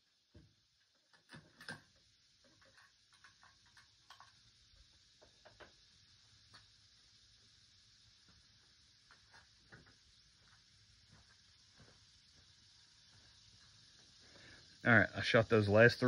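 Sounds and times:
faint ticks and clicks: 0:00.3 - 0:05.8.

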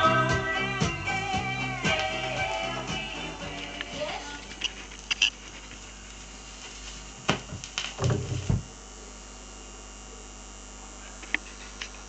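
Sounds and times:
steady mains hum: 0:00.0 - 0:12.0
stylus clicks: 0:04.5 - 0:05.4.

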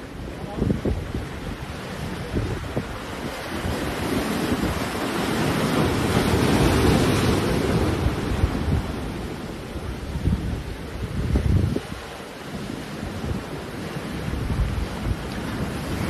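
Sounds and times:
sea waves breaking on rocks: 0:00.0 - 0:16.0
wind buffeting microphone: 0:00.0 - 0:16.0.

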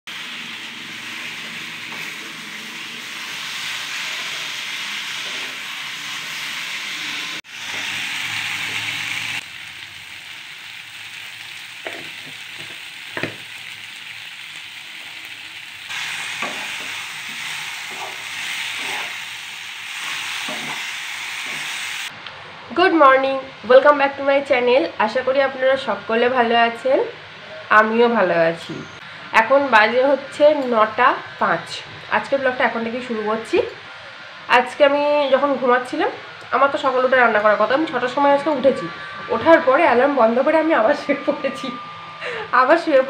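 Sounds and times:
vegetables sizzling in oil: 0:00.1 - 0:22.1
spatula knocking and scraping pan: 0:17.9 - 0:18.2.

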